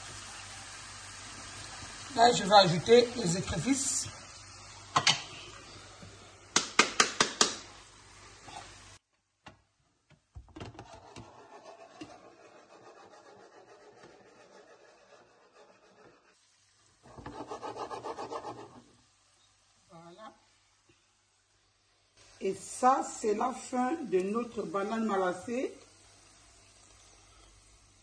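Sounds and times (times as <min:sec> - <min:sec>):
onions sizzling in frying pan: 0:00.0 - 0:06.5, 0:07.4 - 0:09.0, 0:16.4 - 0:17.6, 0:18.8 - 0:28.0
taps on frying pan: 0:06.6 - 0:07.6.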